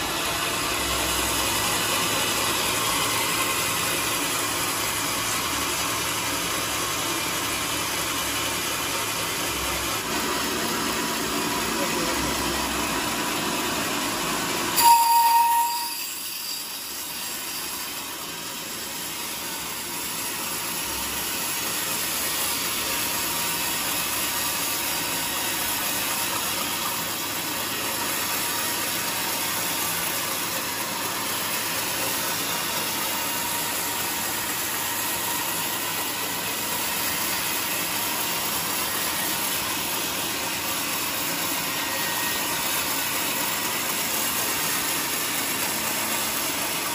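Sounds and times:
band saw cutting wood: 0:00.0 - 0:46.9
band saw squeal: 0:14.7 - 0:18.2, 0:25.4 - 0:45.5.

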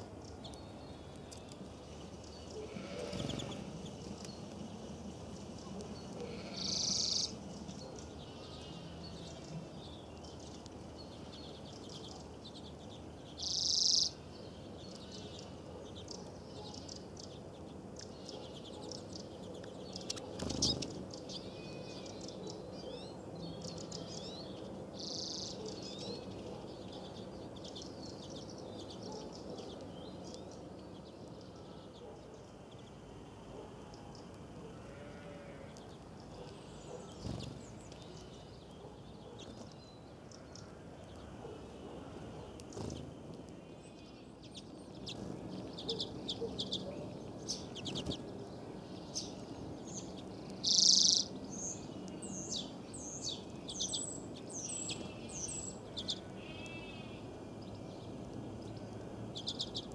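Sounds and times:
songbirds chirping: 0:00.0 - 0:59.9
loud high bird calls: 0:02.4 - 0:03.9, 0:06.1 - 0:07.4, 0:52.4 - 0:57.4.

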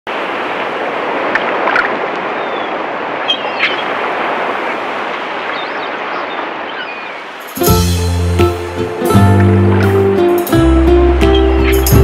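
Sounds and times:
sea surf washing: 0:00.1 - 0:12.0.

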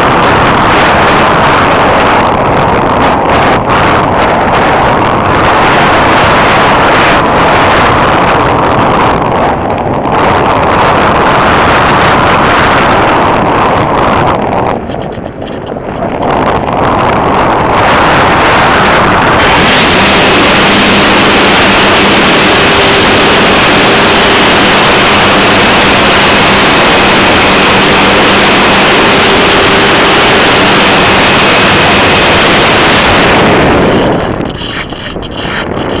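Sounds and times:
wind and propeller rush: 0:00.0 - 0:36.0.

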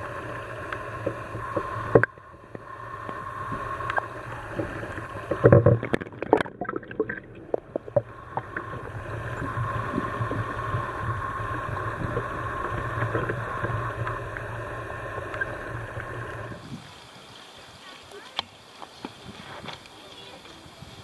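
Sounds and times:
underwater knocks and sloshes: 0:00.0 - 0:16.6
faint whine: 0:00.0 - 0:21.0
steady underwater hum: 0:00.0 - 0:21.0.

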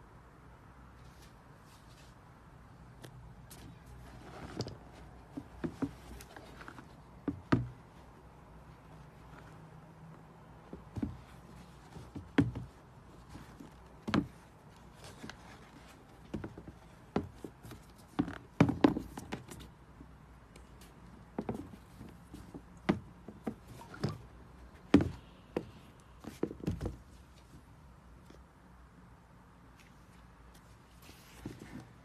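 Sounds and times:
light taps and knocks: 0:04.4 - 0:07.9.

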